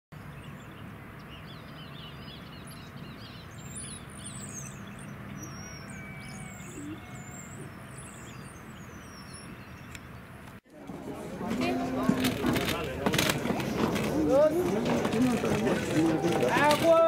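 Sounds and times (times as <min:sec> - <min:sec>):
songbirds chirping: 0:00.2 - 0:17.0.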